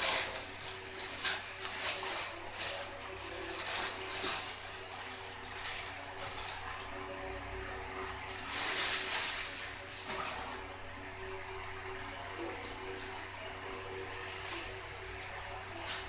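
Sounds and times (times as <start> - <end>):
paper wrapper crinkling: 0.0 - 6.8.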